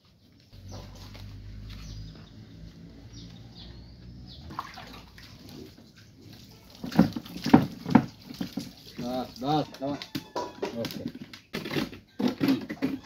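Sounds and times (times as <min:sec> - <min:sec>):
water splashing from jug: 0:04.5 - 0:11.2.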